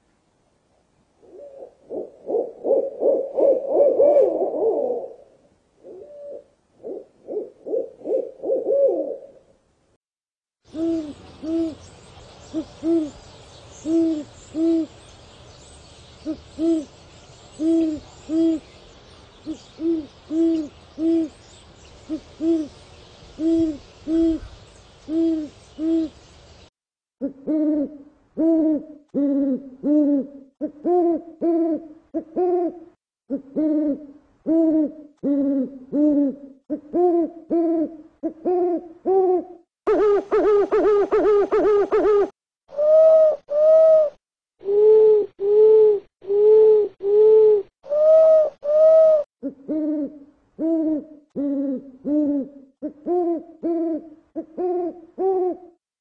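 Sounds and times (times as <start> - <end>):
owl hooting: 5.8 - 9.4, 10.7 - 11.9, 12.5 - 15.1, 16.2 - 18.7, 19.4 - 21.4, 22.0 - 22.8, 23.4 - 26.2, 27.2 - 55.7
steady hiss: 10.7 - 26.7.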